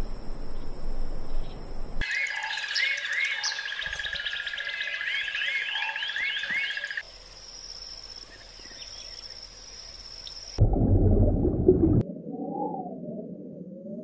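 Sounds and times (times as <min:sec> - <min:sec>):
high-pitched insect whine: 0:00.2 - 0:10.6.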